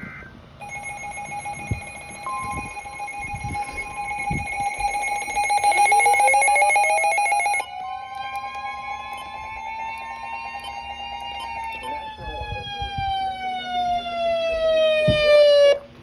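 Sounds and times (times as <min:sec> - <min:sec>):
electronic alarm tones: 0:00.0 - 0:13.4
rising pulsing siren sweep: 0:00.6 - 0:15.8.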